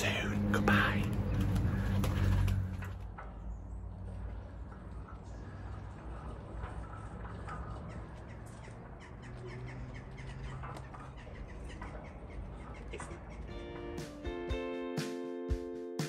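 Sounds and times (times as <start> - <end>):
footsteps on gravel: 0.0 - 3.1
low steady rumble: 0.0 - 8.2
crows cawing: 7.8 - 13.9.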